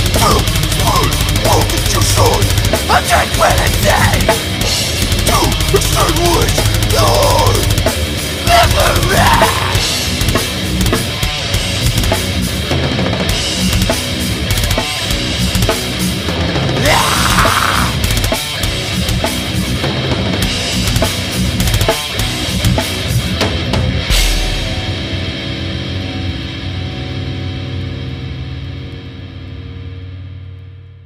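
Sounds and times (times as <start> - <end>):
drum kit with heavy bass drum: 0.0 - 26.6
distorted electric guitar: 0.0 - 31.0.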